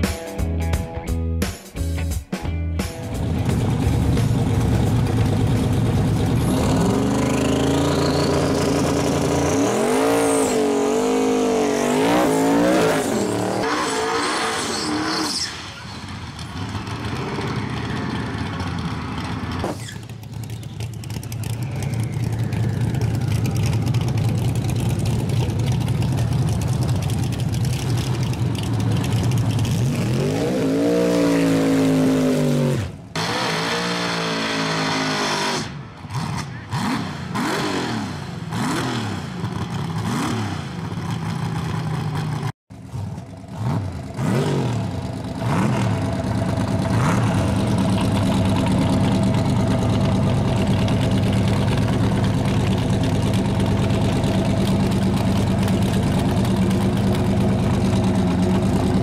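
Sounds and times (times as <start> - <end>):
high turbo whine: 3.2 - 40.8
truck engine revving hard: 6.3 - 15.5, 29.7 - 40.9, 42.9 - 46.2, 46.8 - 47.8.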